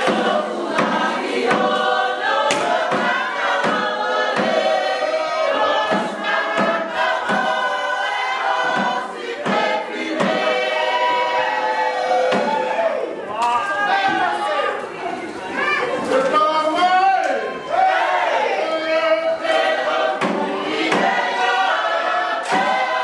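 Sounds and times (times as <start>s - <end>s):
sharp percussive beat: 0.0s - 10.9s, 19.5s - 23.0s
group singing: 0.0s - 14.7s, 17.4s - 23.0s.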